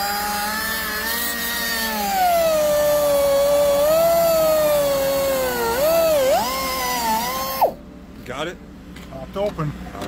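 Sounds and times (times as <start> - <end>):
power drill motor whine: 0.0 - 7.8.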